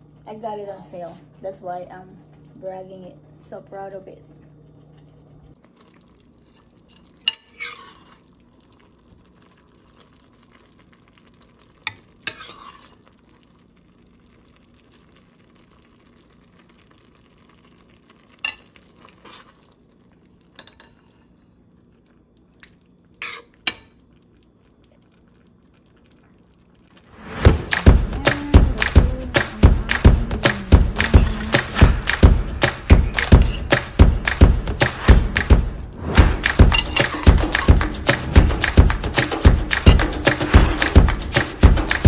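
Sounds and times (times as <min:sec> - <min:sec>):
metal ladle scraping a pot: 0:06.9 - 0:08.2, 0:12.2 - 0:13.0, 0:23.2 - 0:23.8
loud rhythmic music: 0:27.3 - 0:42.0.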